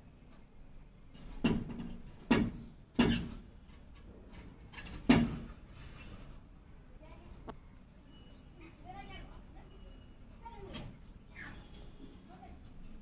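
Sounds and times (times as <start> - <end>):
sharp knocks: 1.4 - 3.4, 5.0 - 5.5.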